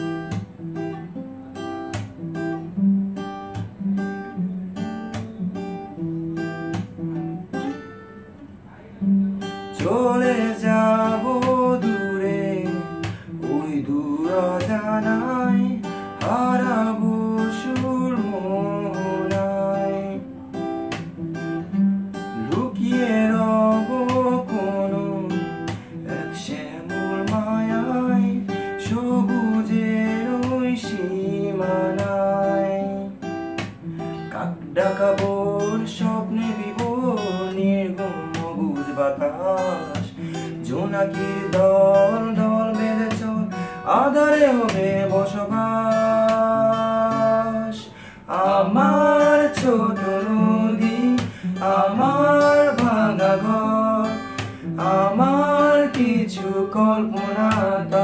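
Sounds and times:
strummed acoustic guitar: 0:00.0 - 0:58.0
person singing: 0:34.2 - 0:58.0.

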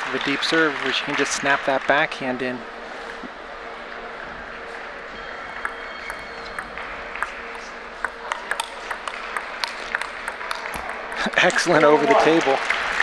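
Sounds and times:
table tennis ball clicking: 0:05.6 - 0:12.4.

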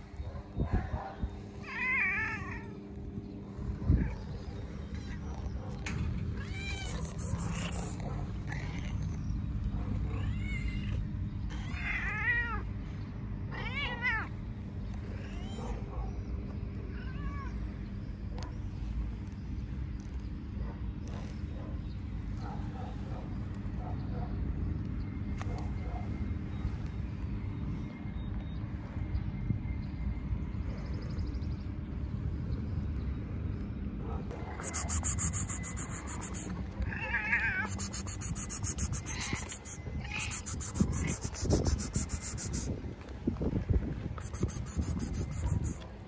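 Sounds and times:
low background rumble: 0:00.0 - 0:46.0
cat meowing: 0:06.4 - 0:09.1, 0:10.0 - 0:12.6, 0:34.6 - 0:42.6.

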